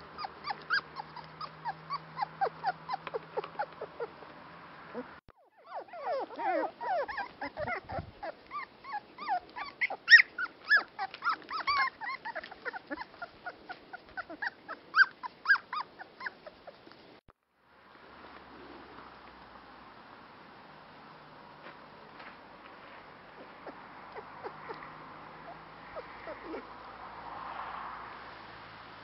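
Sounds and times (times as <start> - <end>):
puppies whimpering and yipping: 0.0 - 4.3, 4.9 - 17.2, 23.3 - 26.8.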